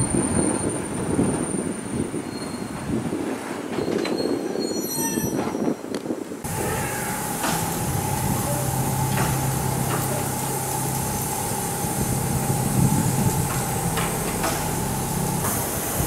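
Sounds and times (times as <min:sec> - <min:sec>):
steady machinery hum: 0:06.4 - 0:16.0
steam hissing: 0:06.4 - 0:16.0.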